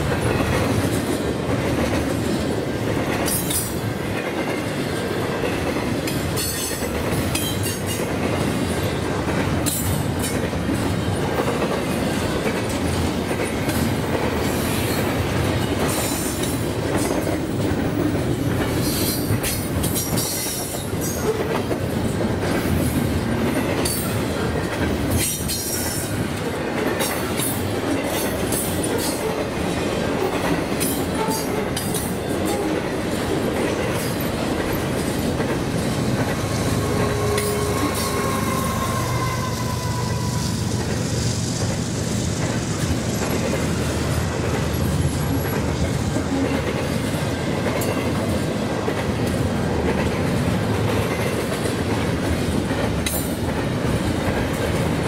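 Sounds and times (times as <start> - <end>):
train wheels on rails: 0.0 - 55.0
wheels clicking over rail joints: 41.6 - 55.0.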